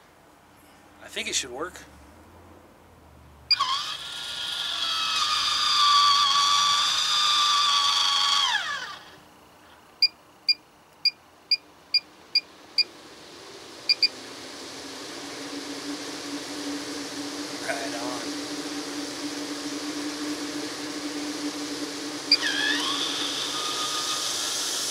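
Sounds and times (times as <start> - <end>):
fan rushing air: 0.0 - 24.9
electric lid motor whining: 3.5 - 9.3, 13.8 - 24.9.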